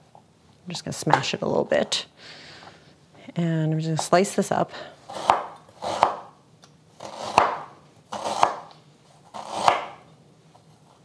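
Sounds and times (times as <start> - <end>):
knife slicing ginger root: 5.1 - 6.3, 7.0 - 8.7, 9.3 - 10.0.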